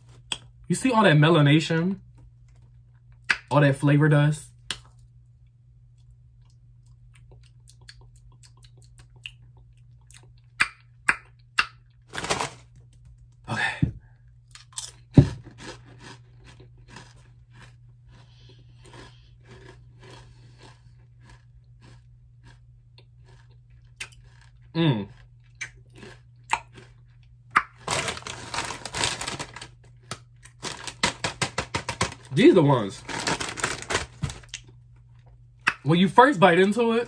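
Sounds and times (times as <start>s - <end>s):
potato chips crunching: 6.4s - 12.9s, 14.5s - 37.0s.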